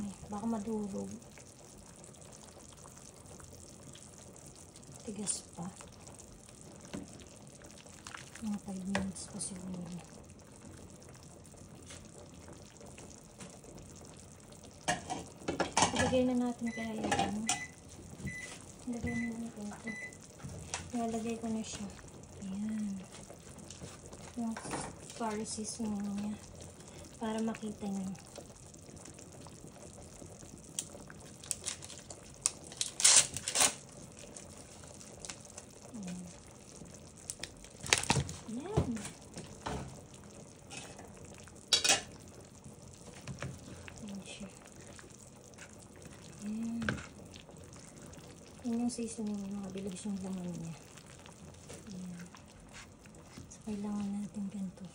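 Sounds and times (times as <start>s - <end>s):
pot simmering: 0.0s - 54.9s
plastic packet crinkling and tearing: 31.4s - 33.8s, 37.3s - 38.2s.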